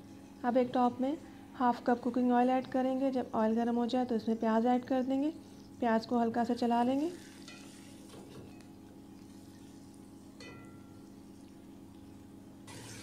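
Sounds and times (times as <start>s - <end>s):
onions sizzling in oil: 7.1s - 8.1s.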